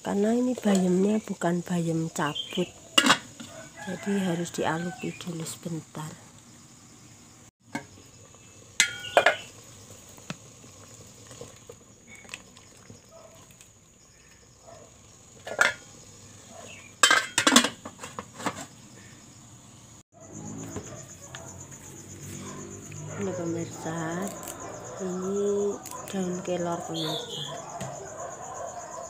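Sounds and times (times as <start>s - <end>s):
pot lid clattering: 3.0s - 3.5s, 8.8s - 9.5s, 15.4s - 15.9s, 17.0s - 18.7s.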